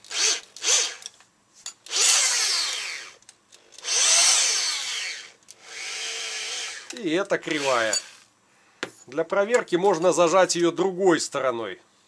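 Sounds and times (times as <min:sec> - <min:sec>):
electric drill spinning: 0:00.0 - 0:01.1, 0:01.9 - 0:08.3.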